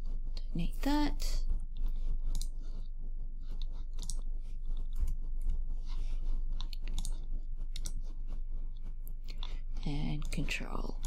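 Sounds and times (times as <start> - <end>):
computer mouse clicking: 2.2 - 2.6, 3.5 - 4.3, 6.6 - 8.1.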